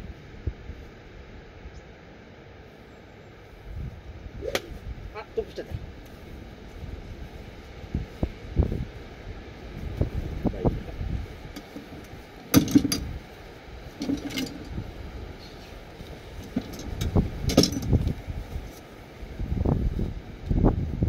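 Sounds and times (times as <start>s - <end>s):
low rumble: 3.4s - 18.6s
clinking rattling handling noise: 11.6s - 13.1s, 14.0s - 14.8s, 16.4s - 18.0s.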